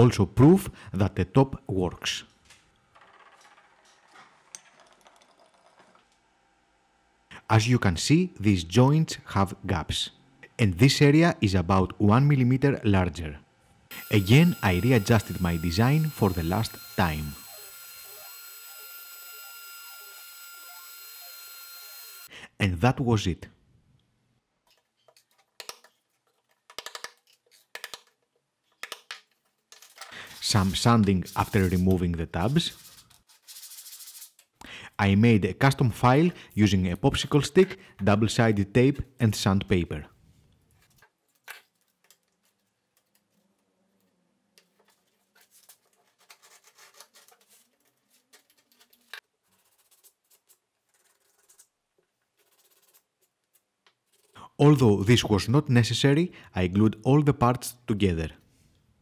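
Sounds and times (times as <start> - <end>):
utility knife cutting sandpaper: 30.4 - 34.4.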